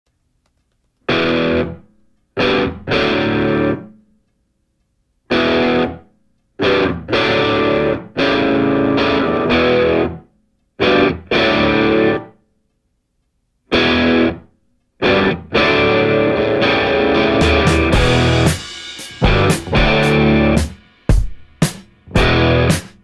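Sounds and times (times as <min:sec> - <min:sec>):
distorted electric guitar chords: 0:01.1 - 0:04.0, 0:05.3 - 0:06.0, 0:06.6 - 0:12.4, 0:13.7 - 0:20.8, 0:22.0 - 0:23.0.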